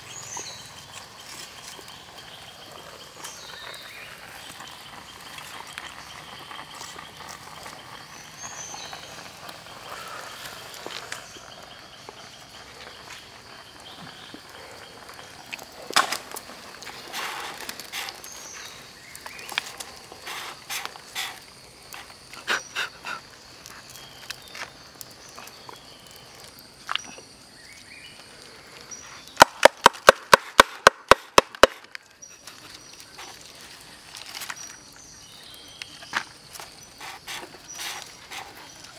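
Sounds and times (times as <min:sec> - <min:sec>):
sharp knocks on hollow bamboo: 0:15.9 - 0:16.3, 0:29.4 - 0:32.0
knife scraping bamboo tube: 0:37.0 - 0:38.7.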